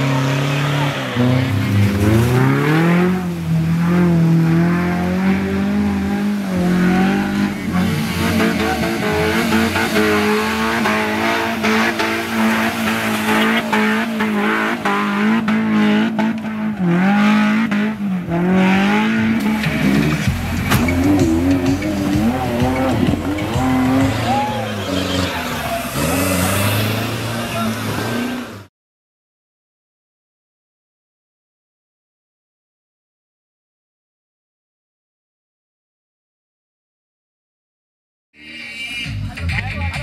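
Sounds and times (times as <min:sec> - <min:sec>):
off-road engines revving hard: 0:00.0 - 0:28.7.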